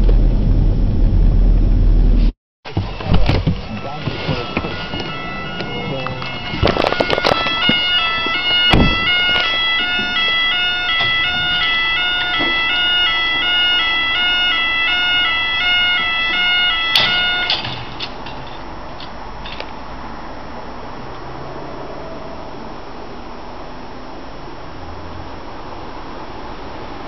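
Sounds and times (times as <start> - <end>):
handling knocks and bumps: 2.7 - 10.4
two-tone electronic alarm wail: 2.7 - 17.8.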